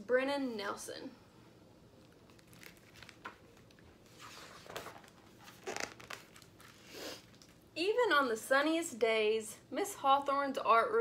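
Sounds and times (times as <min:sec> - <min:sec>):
book pages rustling: 0:02.0 - 0:07.6.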